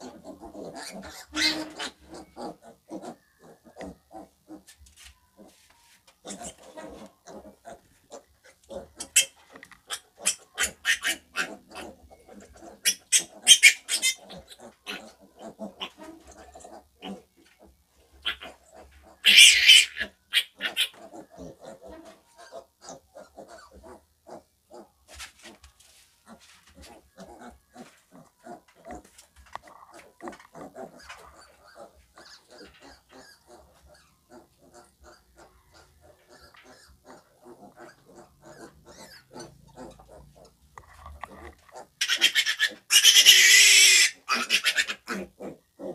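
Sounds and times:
piglet squealing: 0.0 - 4.6, 6.2 - 17.3, 18.2 - 24.0, 30.6 - 40.2, 41.8 - 45.6.

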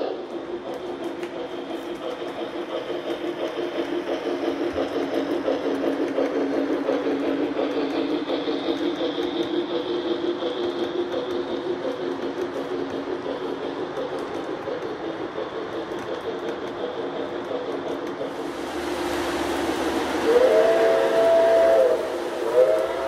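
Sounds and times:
model train wheels rumbling: 0.0 - 23.0
locomotive high whine: 18.3 - 23.0.

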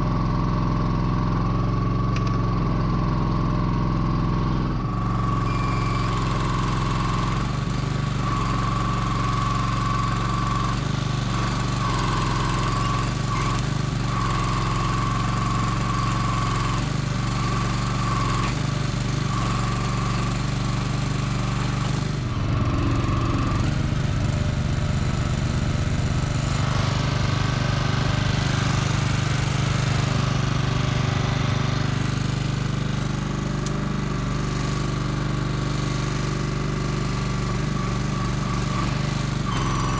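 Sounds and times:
small gas engine running: 0.0 - 39.9
high hydraulic whine: 21.5 - 32.6.

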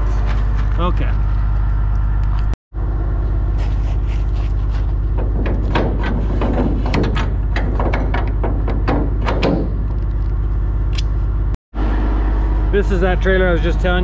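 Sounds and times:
footsteps on gravel: 0.0 - 2.5, 3.6 - 5.1
clicks and knocks on metal trailer: 5.2 - 9.9.

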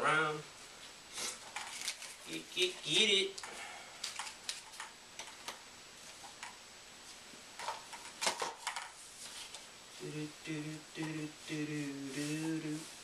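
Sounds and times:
plastic leg brace clicks and knocks: 7.6 - 9.0
person humming: 10.0 - 13.0.

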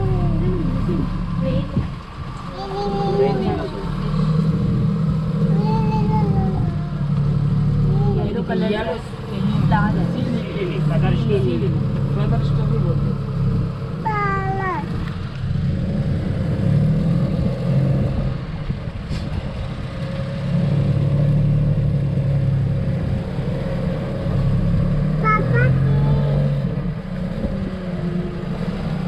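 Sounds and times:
voices calling out: 0.0 - 15.4, 25.0 - 29.0
boat engine humming: 0.0 - 29.0.

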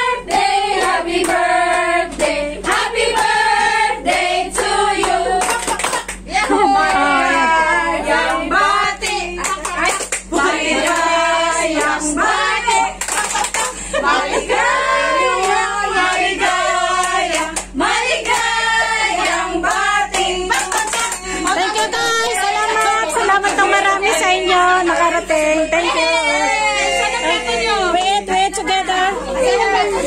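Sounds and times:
women singing together: 0.0 - 30.0
hand clapping: 0.3 - 3.4, 4.1 - 7.0, 9.0 - 11.1, 12.8 - 13.8, 17.0 - 18.6, 19.2 - 21.6.

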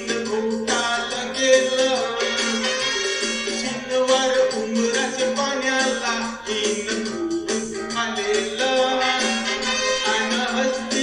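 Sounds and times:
music with held notes: 0.0 - 11.0.

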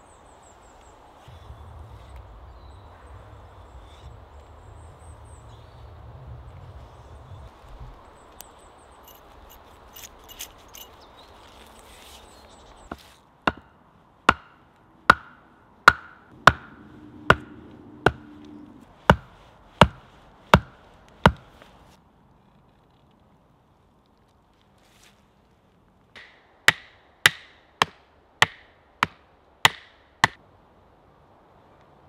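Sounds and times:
axe knocking on wooden stake: 13.5 - 13.7, 14.3 - 18.3, 19.1 - 20.0, 20.6 - 21.5, 26.2 - 30.4
faint rustling: 17.6 - 26.0.

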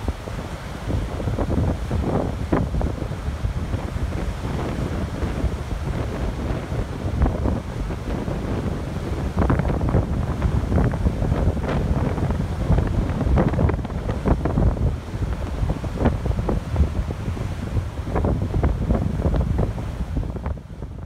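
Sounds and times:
strong gusty wind on microphone: 0.0 - 21.0.

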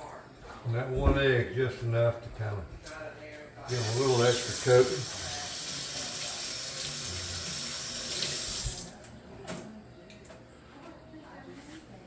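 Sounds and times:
hands rinsed under water: 3.7 - 8.9
tap running into sink: 6.9 - 8.9.

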